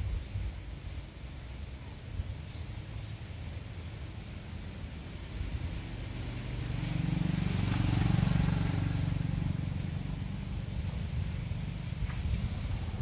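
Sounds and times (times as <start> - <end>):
vehicle engine passing: 5.5 - 13.0.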